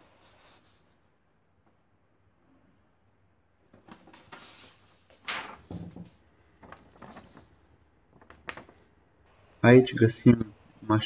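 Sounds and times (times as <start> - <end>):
paper rustling: 3.7 - 9.0.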